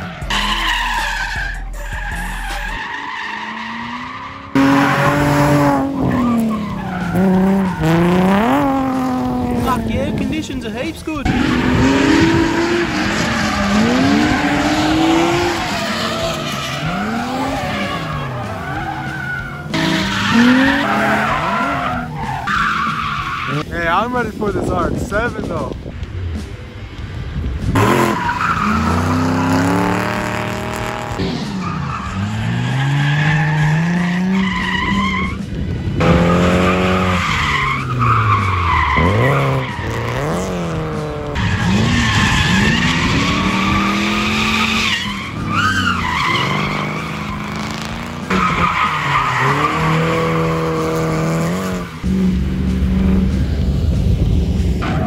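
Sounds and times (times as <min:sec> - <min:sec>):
tyres squealing: 0:00.0 - 0:23.7, 0:36.0 - 0:52.0
car engines revving: 0:00.0 - 0:55.0.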